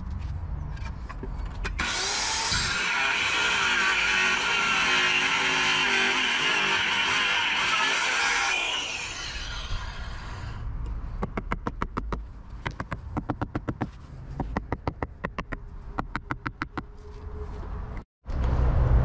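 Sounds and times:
circular saw: 1.7 - 10.6.

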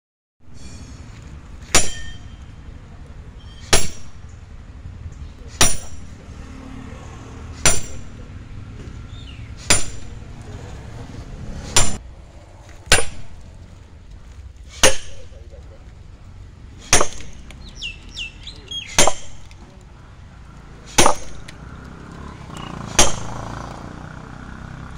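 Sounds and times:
sledgehammer striking steel wedge: 0.5 - 2.5, 3.4 - 4.4, 5.5 - 6.2, 7.6 - 8.3, 9.6 - 10.3, 11.6 - 12.0, 12.8 - 13.4, 14.7 - 15.3, 16.8 - 17.5, 18.9 - 19.6, 20.9 - 21.6, 22.9 - 23.4.

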